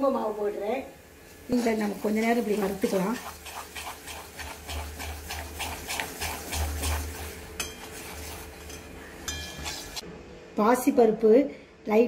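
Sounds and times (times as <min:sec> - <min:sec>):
metal spoon scraping a metal pan: 0:02.2 - 0:10.0.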